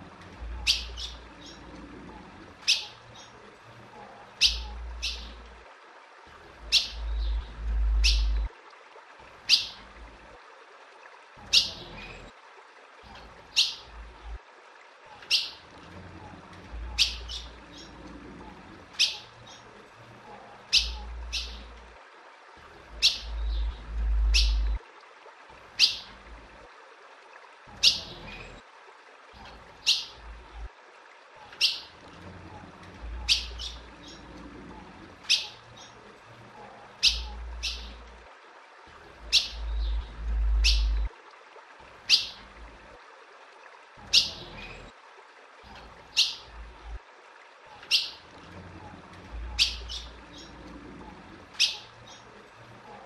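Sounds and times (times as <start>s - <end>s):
low rumble: 7.0s - 8.5s, 23.4s - 24.8s, 39.6s - 41.1s.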